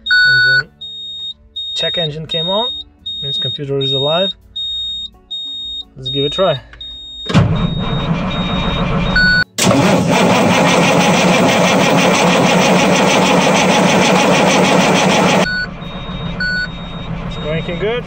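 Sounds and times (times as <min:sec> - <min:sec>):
diesel engine starter cranking: 0:07.3 - 0:18.0.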